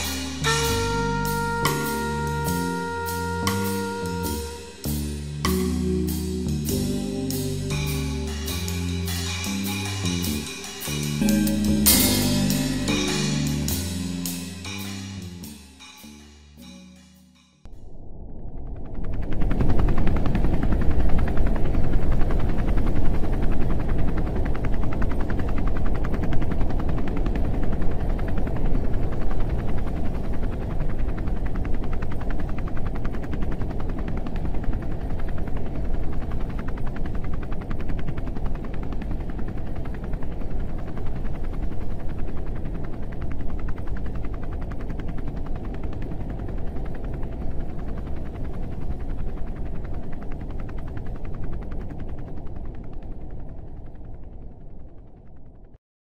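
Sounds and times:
dense low rumble with rattling flutter: 0:17.8 - 0:55.8.

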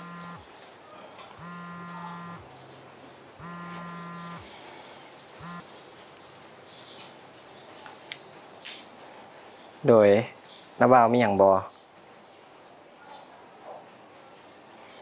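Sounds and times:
mobile phone ringing: 0:00.0 - 0:00.4, 0:01.4 - 0:02.4, 0:03.4 - 0:04.5, 0:05.4 - 0:05.6.

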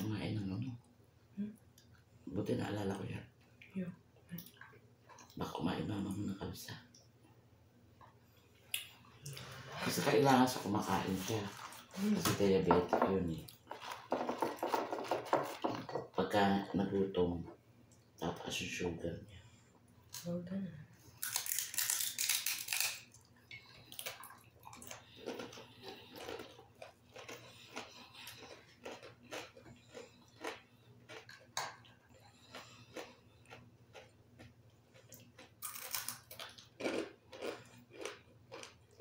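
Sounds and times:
low steady hum: 0:00.0 - 0:39.0
chewing and crunching: 0:21.2 - 0:39.0.

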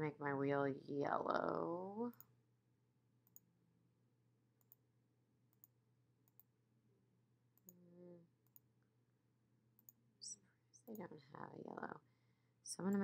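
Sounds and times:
computer mouse clicks: 0:05.5 - 0:06.5.

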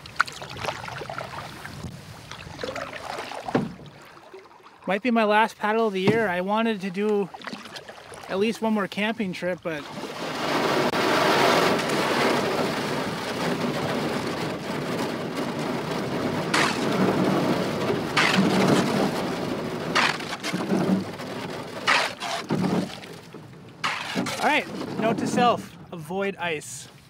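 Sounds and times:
thin ice crackling under a canoe: 0:13.6 - 0:25.0.

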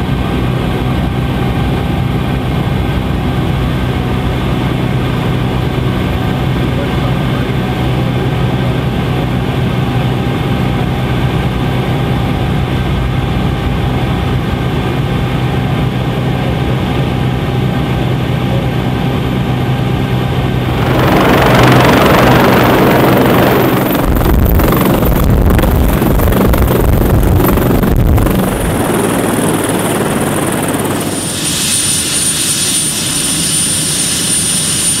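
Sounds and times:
helicopter rotor and turbine drone: 0:00.0 - 0:35.0
high turbine whine: 0:00.0 - 0:35.0
rotor wash rushing: 0:20.7 - 0:35.0.

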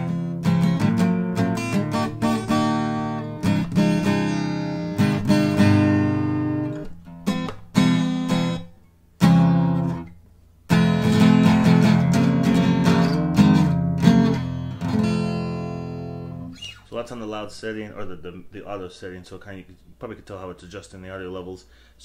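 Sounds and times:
acoustic guitar strumming: 0:00.0 - 0:17.1.

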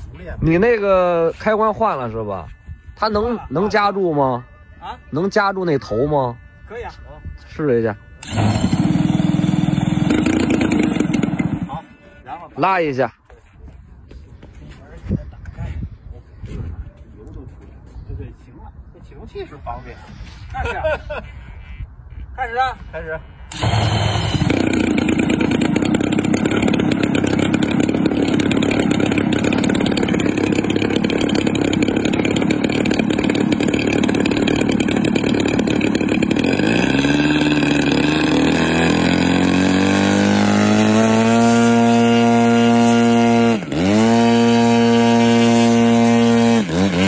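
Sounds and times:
model plane engine: 0:08.2 - 0:11.9, 0:23.5 - 0:47.0
starter motor: 0:08.2 - 0:11.9, 0:23.5 - 0:47.0.

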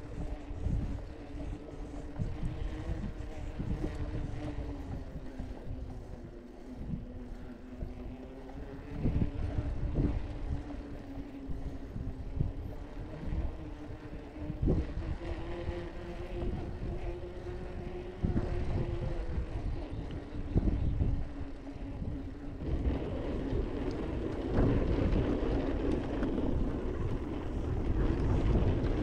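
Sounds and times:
bicycle tyre hum: 0:00.0 - 0:29.0
wind buffeting microphone: 0:00.0 - 0:29.0.

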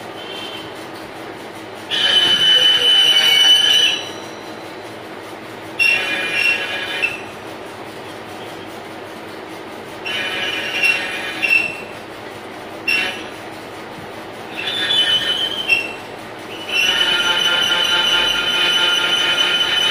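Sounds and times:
metal lathe humming: 0:00.1 - 0:19.9
cutting tool squealing on metal: 0:01.9 - 0:05.0, 0:05.8 - 0:07.5, 0:10.0 - 0:12.0, 0:12.8 - 0:13.6, 0:14.4 - 0:19.9.

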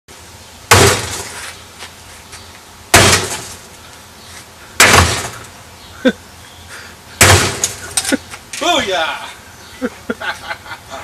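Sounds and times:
axe striking a refrigerator: 0:00.7 - 0:01.3, 0:02.9 - 0:03.6, 0:04.8 - 0:05.4, 0:07.2 - 0:07.8.

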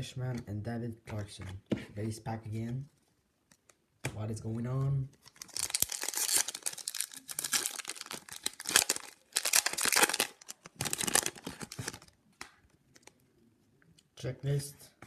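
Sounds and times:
wrapper crinkling: 0:05.2 - 0:13.1.

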